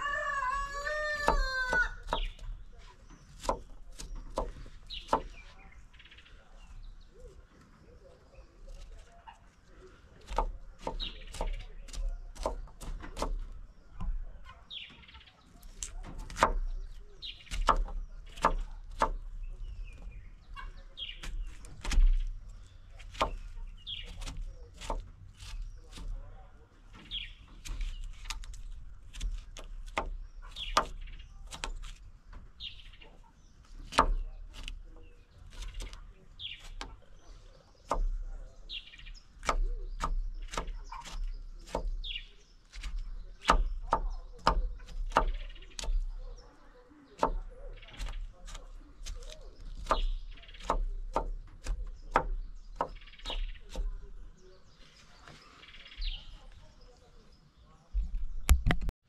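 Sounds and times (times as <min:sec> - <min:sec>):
knife chopping on wooden board: 0:01.1 - 0:02.5, 0:03.2 - 0:05.4, 0:10.2 - 0:14.2, 0:15.8 - 0:19.3, 0:21.2 - 0:22.3, 0:23.0 - 0:26.2, 0:27.6 - 0:32.0, 0:33.8 - 0:34.8, 0:37.8 - 0:38.2, 0:39.4 - 0:46.1, 0:47.2 - 0:54.1.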